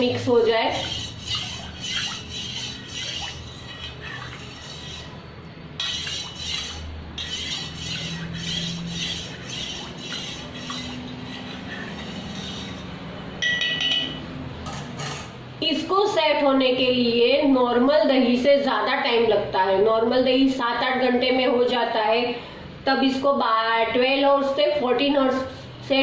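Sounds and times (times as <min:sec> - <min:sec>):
spoon clinking and scraping metal: 0:00.1 - 0:05.2, 0:05.8 - 0:15.3.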